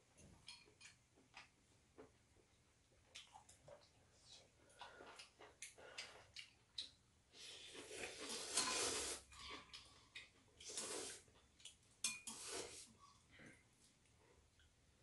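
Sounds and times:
slurping noodles: 0:07.5 - 0:09.6, 0:10.6 - 0:11.3, 0:12.3 - 0:12.9.

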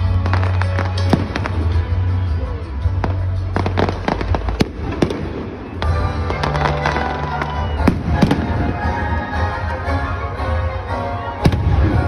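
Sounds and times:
fireworks bursting with bangs: 0:00.0 - 0:02.3, 0:03.0 - 0:09.6, 0:11.4 - 0:12.0
music playing: 0:00.0 - 0:12.0.

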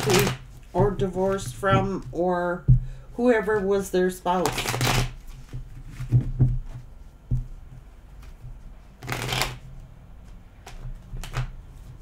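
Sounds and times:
cards being shuffled: 0:00.0 - 0:01.4, 0:04.4 - 0:06.1, 0:09.0 - 0:12.0.

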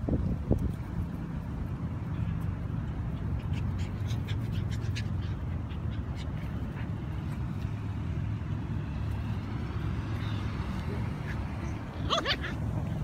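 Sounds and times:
puppies yipping: 0:03.2 - 0:07.4, 0:11.2 - 0:13.0.

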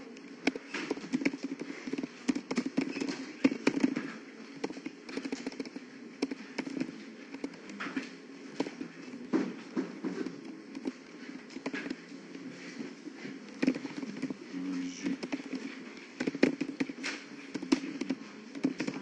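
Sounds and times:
computer keyboard typing: 0:00.2 - 0:08.8, 0:13.5 - 0:19.0.

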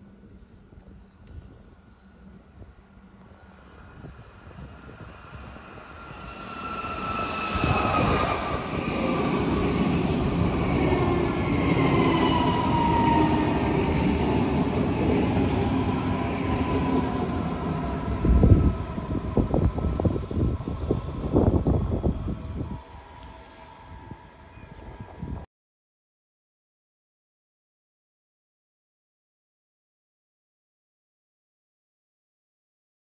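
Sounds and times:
train wheels rumbling on rails: 0:03.2 - 0:25.4.

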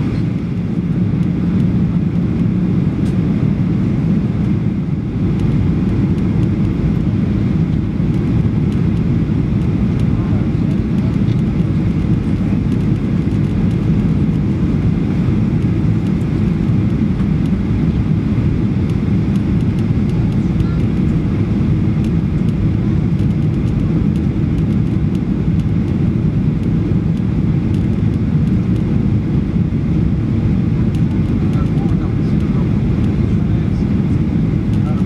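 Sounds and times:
airplane cabin jet engine rumble: 0:00.0 - 0:35.0.

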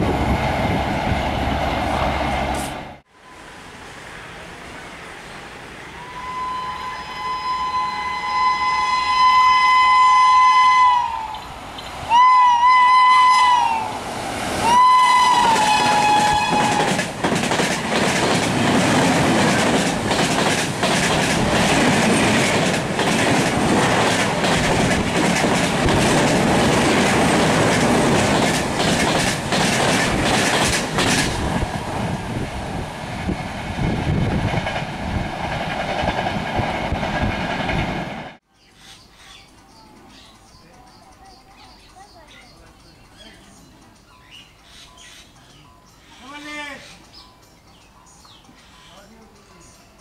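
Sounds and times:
express train passing: 0:00.0 - 0:50.0
train horn blast: 0:05.9 - 0:11.4, 0:12.1 - 0:14.0, 0:14.6 - 0:17.0
wheels clacking over rail joints: 0:14.2 - 0:38.4.

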